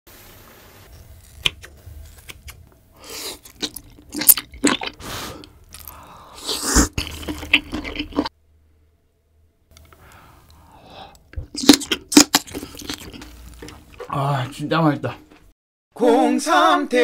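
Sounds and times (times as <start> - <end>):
person chewing food: 1.2 - 8.3, 9.8 - 14.2.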